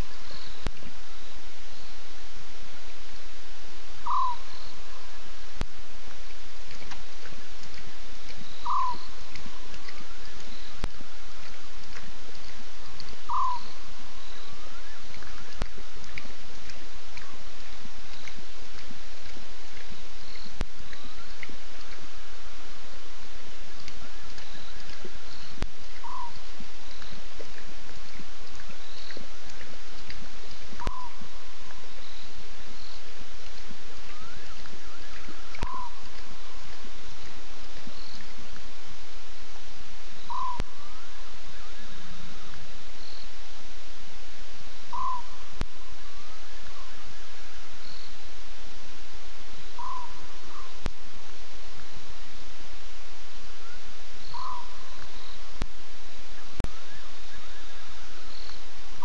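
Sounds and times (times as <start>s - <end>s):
faint bird chirps: 0.0s - 59.0s
frogs and insects chorus: 0.0s - 59.0s
small night animal call: 0.0s - 59.0s
steady hiss: 0.0s - 59.0s
short sharp animal call: 4.0s - 4.5s, 13.3s - 13.7s.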